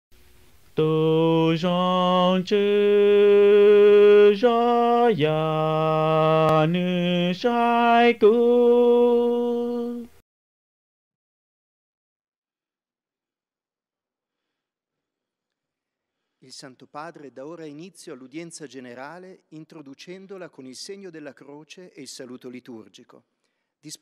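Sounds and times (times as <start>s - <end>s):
slow chant-like singing: 0.7s - 10.2s.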